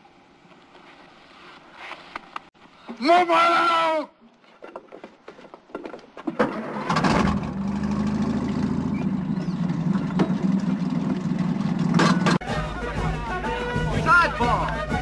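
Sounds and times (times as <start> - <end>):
tank engine starting and running: 6.4 - 12.4.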